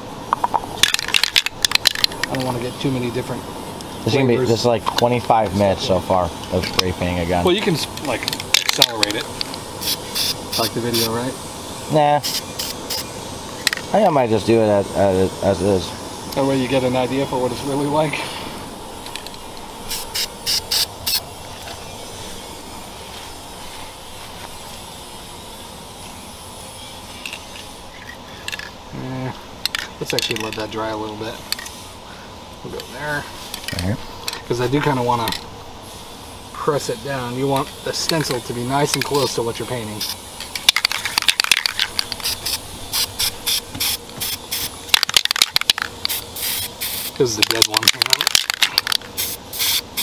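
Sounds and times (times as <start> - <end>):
steady background hiss: 0.0 - 50.0
aerosol spray can hisses: 7.7 - 27.9, 31.6 - 32.0, 35.8 - 47.4, 48.8 - 50.0.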